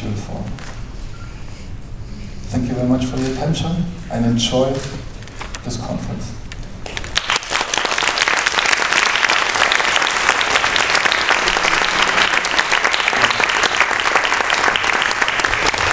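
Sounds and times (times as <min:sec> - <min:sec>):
audience applauding: 0:06.8 - 0:15.9.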